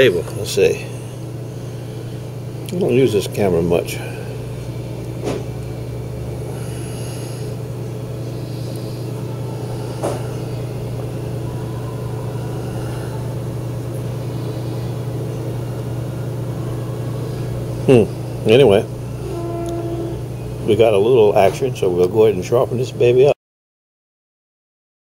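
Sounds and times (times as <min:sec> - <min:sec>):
low mechanical hum of machinery: 0:00.0 - 0:23.4.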